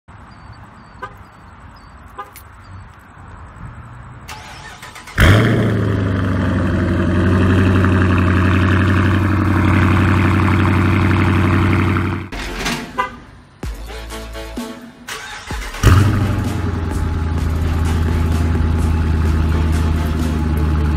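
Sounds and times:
car engine starting and idling: 4.1s - 13.5s, 15.0s - 20.9s.

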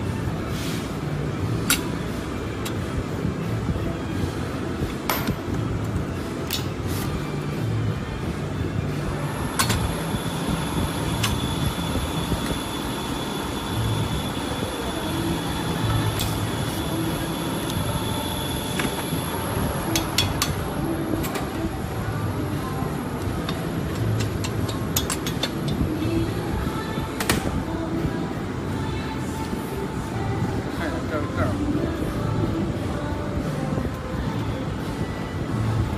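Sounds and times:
cordless drill rumble and whine: 9.2s - 21.1s.

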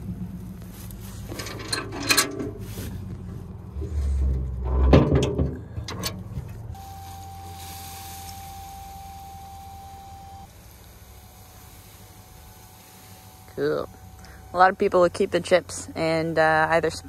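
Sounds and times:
wood chips sliding: 0.0s - 4.3s, 6.6s - 16.1s
low hum: 0.0s - 17.0s
metal clanks and rattles: 0.9s - 6.8s
hydraulic whine: 6.8s - 16.0s.

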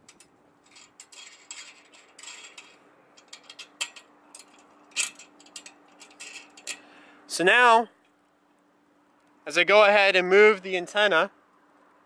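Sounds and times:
metal clamp clicking and clinking: 0.0s - 6.8s.

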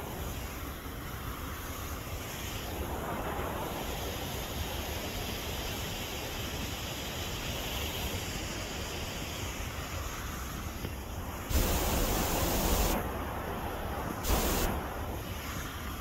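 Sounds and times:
wind buffeting microphone: 11.0s - 16.0s
waterfall rushing: 11.5s - 13.0s, 14.2s - 14.8s.

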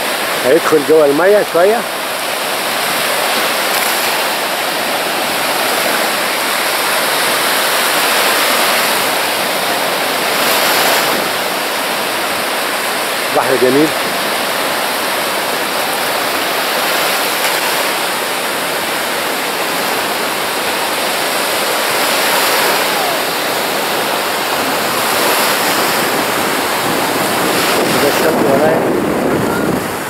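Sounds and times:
surf waves breaking on beach: 0.0s - 30.0s.

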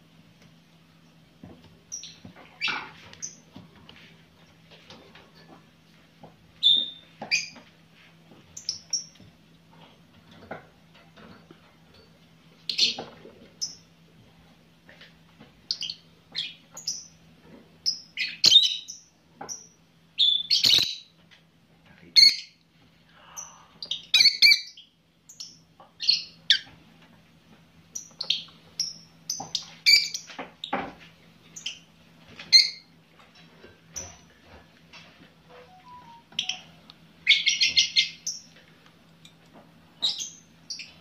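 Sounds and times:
birds chirping and squawking: 1.9s - 3.4s, 12.6s - 13.9s, 17.9s - 21.1s, 23.2s - 26.8s, 28.0s - 30.8s, 36.0s - 38.6s, 40.0s - 41.0s.

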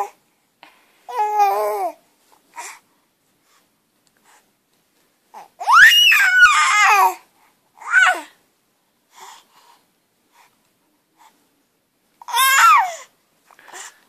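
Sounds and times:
infant cooing: 1.1s - 2.0s, 5.3s - 7.2s, 7.8s - 8.4s, 12.2s - 13.1s
infant high-pitched squeal: 5.4s - 7.2s, 7.8s - 8.3s, 12.3s - 13.1s.

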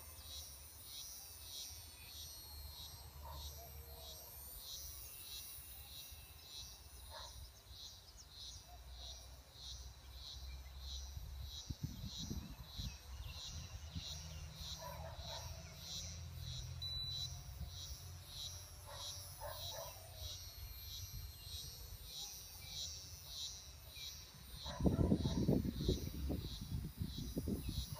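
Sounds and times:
cricket chirping: 0.0s - 27.9s
wind rumble on microphone: 11.3s - 14.2s, 24.6s - 27.9s.

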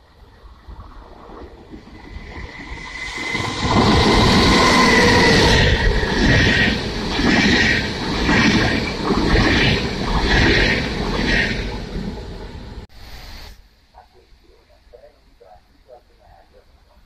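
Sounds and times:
electric locomotive whine: 0.0s - 12.9s.

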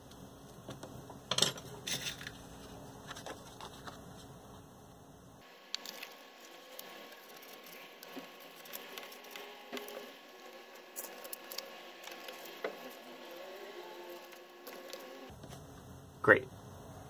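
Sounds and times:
paper rustling and scuffing: 1.8s - 4.3s.

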